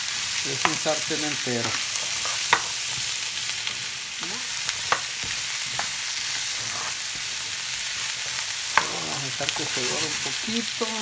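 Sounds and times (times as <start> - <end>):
vegetables sizzling in oil: 0.0 - 11.0
spatula clacking against pan: 4.8 - 6.0.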